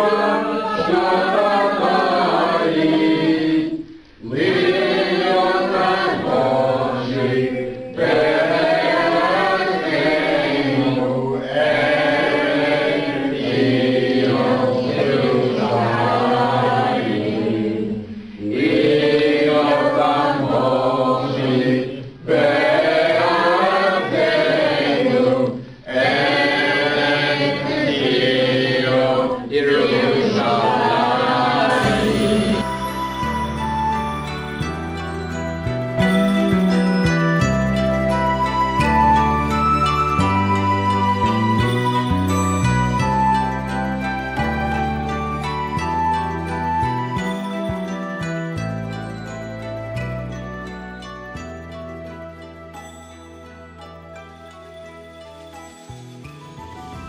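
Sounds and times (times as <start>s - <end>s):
group of voices singing: 0.0s - 33.6s.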